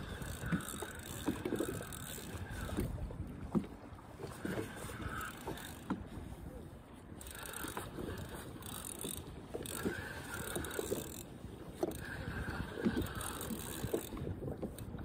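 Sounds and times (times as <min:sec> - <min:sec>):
fishing gear clicks and knocks: 0:00.0 - 0:03.7, 0:07.2 - 0:15.0
wind and water rumble: 0:00.0 - 0:15.0.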